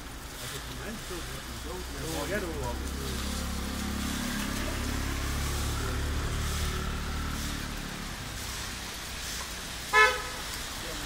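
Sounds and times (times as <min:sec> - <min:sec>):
rain hissing: 0:00.0 - 0:11.0
scooter engine passing: 0:01.8 - 0:09.9.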